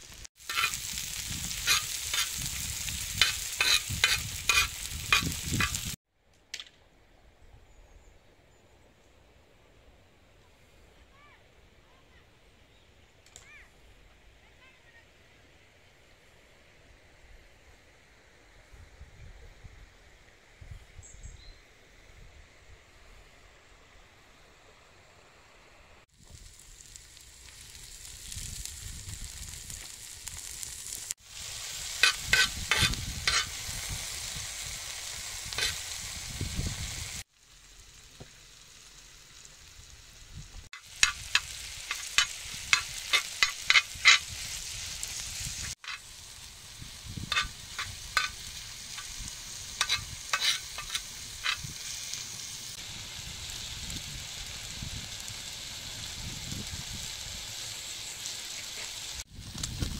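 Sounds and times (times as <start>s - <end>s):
food sizzling in a steel pan: 0.0s - 6.0s, 26.0s - 59.9s
spatula scraping metal pan: 0.4s - 0.8s, 1.6s - 2.4s, 3.2s - 5.9s, 32.0s - 33.6s, 35.6s - 35.8s, 41.0s - 44.3s, 47.3s - 49.1s, 49.8s - 51.7s.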